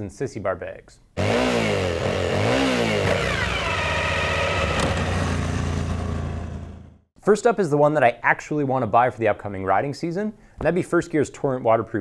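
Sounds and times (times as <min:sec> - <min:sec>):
motorcycle engine revving: 0:01.2 - 0:07.1.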